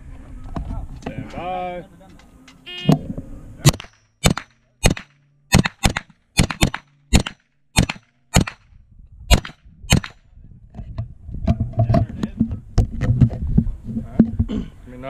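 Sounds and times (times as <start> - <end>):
gunshots with echo: 3.6 - 8.7, 9.3 - 10.2.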